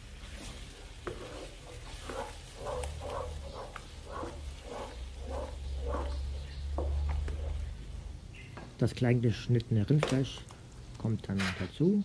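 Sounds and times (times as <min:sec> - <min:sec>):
plastic spatula scraping a wok: 0:00.0 - 0:08.0
light sizzle: 0:00.0 - 0:11.9.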